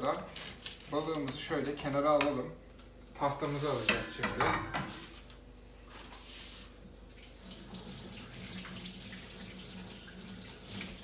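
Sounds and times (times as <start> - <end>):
tap water running into sink: 7.3 - 11.0.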